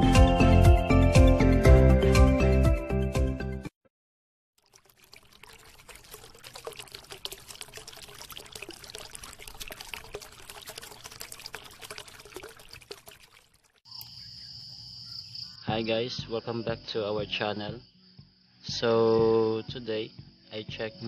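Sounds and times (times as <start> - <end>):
water pouring and trickling: 4.6 - 14.3
crickets chirring: 13.9 - 21.0.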